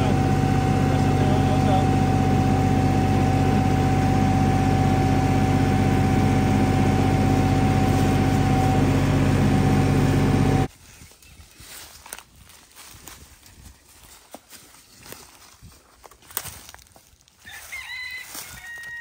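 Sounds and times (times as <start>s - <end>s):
tractor engine idling: 0.0s - 10.7s
footsteps in dry leaves: 7.6s - 8.6s, 10.7s - 19.0s.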